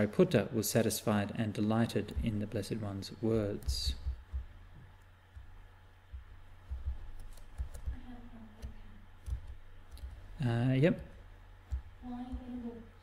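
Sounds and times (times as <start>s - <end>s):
low electrical hum: 0.0s - 13.0s
computer mouse clicks: 7.1s - 8.0s.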